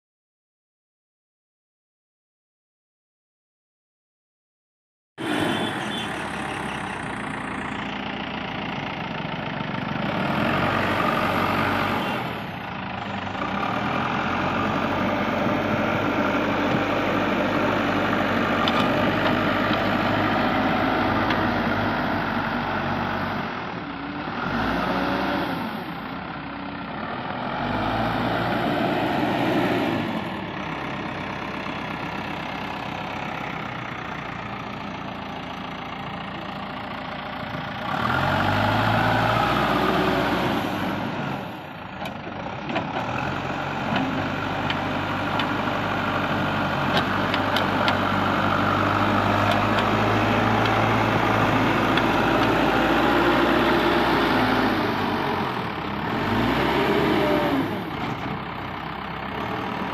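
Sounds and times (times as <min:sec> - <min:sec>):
diesel engine running: 0:05.2 - 0:59.9.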